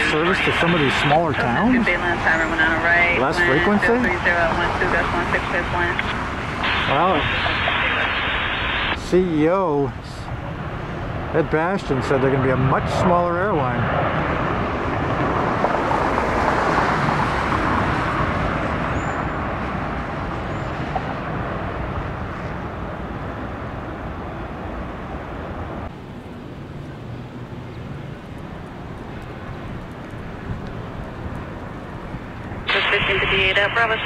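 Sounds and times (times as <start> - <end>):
jet engines roaring on takeoff: 0.0 - 34.0.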